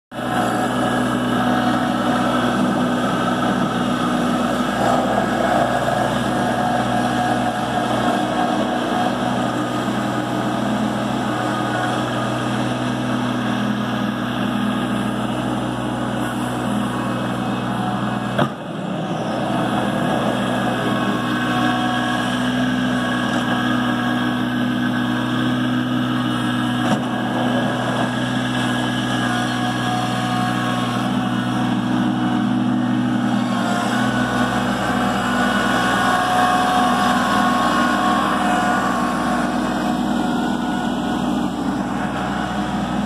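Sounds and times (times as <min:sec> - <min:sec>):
plow scraping snow: 0:00.1 - 0:43.0
tractor diesel engine running: 0:00.1 - 0:43.0.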